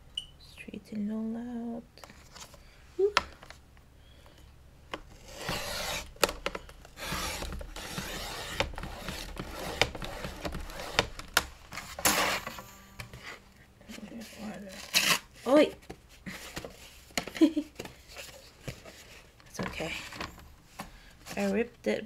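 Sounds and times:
paper rustling and sliding: 0:05.1 - 0:17.2.

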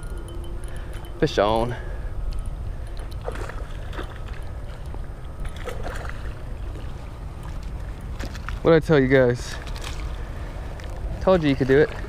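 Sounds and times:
light clicks and rustles: 0:09.4 - 0:11.7.

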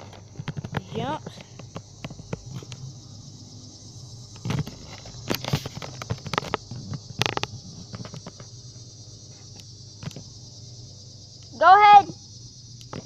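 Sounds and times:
camera handled on asphalt: 0:00.0 - 0:02.8, 0:04.2 - 0:08.6
high-pitched hiss: 0:00.0 - 0:13.0.

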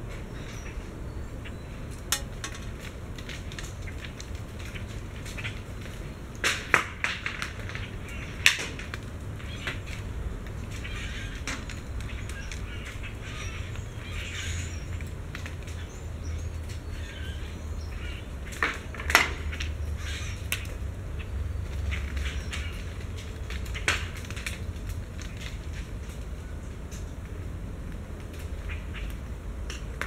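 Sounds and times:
acorns dropping and ticking: 0:01.9 - 0:12.6.

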